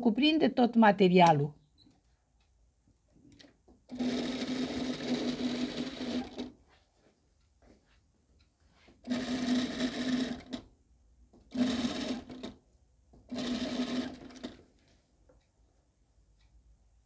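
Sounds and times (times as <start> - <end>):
sewing machine stitching: 3.9 - 6.5, 9.0 - 10.7, 11.5 - 12.6, 13.3 - 14.6.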